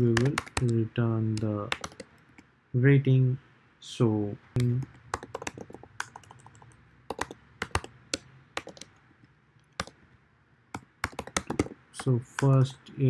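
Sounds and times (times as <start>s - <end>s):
computer keyboard key clicks: 1.7s - 2.1s, 4.6s - 8.9s, 10.8s - 12.6s.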